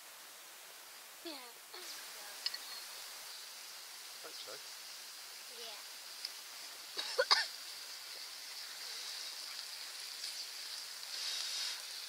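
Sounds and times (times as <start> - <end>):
meat sizzling in a frying pan: 1.7 - 12.0.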